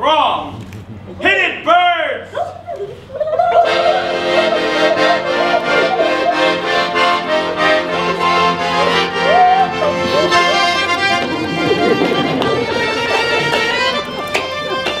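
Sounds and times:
piano accordion playing: 3.4s - 15.0s.

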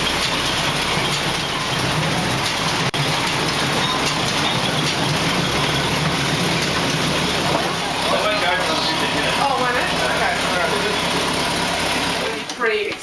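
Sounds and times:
miniature train rumbling: 0.0s - 13.0s.

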